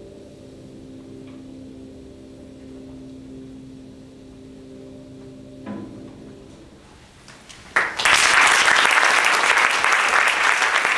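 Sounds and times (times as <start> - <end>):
held musical notes: 0.0 - 7.8
audience applause: 7.7 - 10.9.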